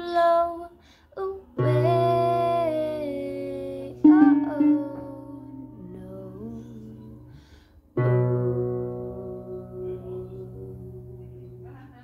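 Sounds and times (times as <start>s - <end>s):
woman's wordless singing: 0.0s - 7.6s
acoustic guitar strummed: 1.6s - 12.0s.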